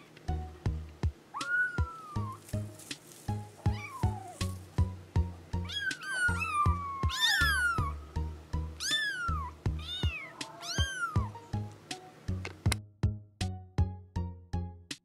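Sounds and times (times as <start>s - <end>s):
background music with low beat: 0.2s - 15.0s
kittens meowing: 1.3s - 2.6s, 3.6s - 4.7s, 5.6s - 8.1s, 8.8s - 11.4s.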